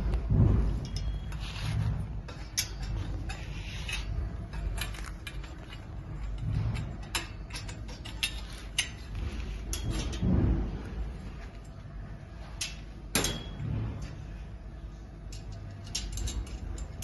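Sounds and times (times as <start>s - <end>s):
low handling rumble: 0.0s - 17.0s.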